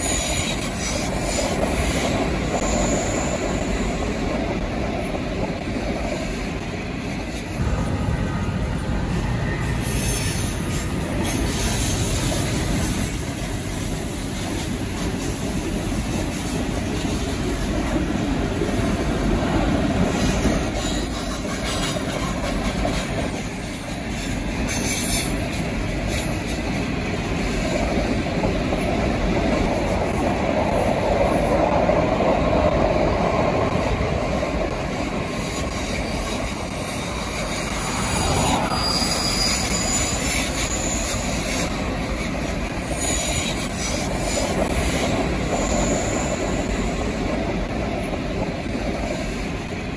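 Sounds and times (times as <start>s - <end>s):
high wheel squeals: 0.0s - 4.7s, 9.4s - 16.6s, 19.9s - 26.6s, 35.4s - 47.7s
freight train rumbling on rails: 0.0s - 49.9s.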